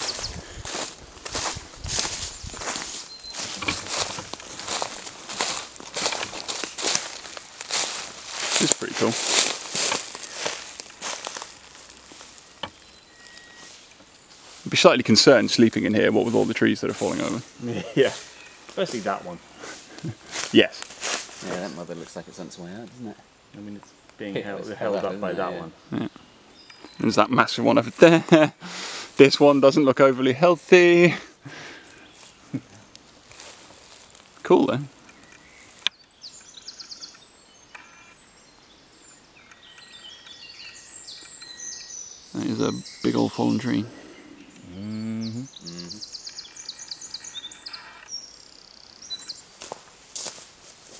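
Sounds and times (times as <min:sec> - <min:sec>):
footsteps on dry leaves: 0:00.0 - 0:12.6, 0:13.3 - 0:14.7, 0:18.0 - 0:21.8, 0:33.0 - 0:34.4, 0:49.2 - 0:50.9
songbirds singing: 0:00.0 - 0:50.9.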